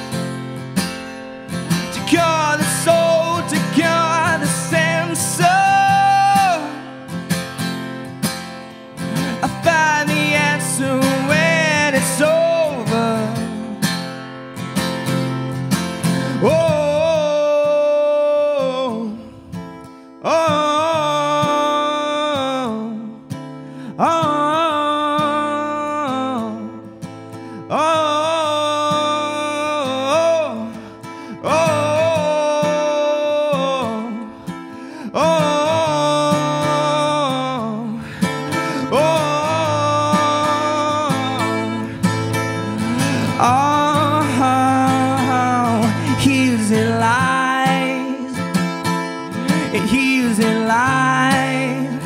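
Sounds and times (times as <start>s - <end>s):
strummed acoustic guitar: 0.0s - 52.0s
man singing wordless phrases: 1.7s - 7.1s, 9.1s - 14.0s, 16.2s - 19.4s, 20.2s - 23.3s, 23.9s - 26.8s, 27.6s - 34.4s, 35.0s - 52.0s.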